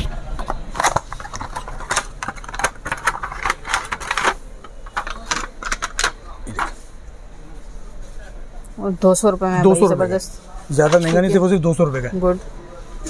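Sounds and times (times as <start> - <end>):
small boxed items clicking and rattling: 0.4 - 6.8.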